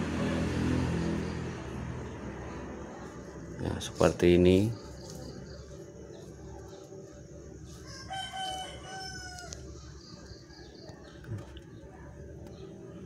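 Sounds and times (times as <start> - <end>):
rooster crowing: 7.7 - 9.9.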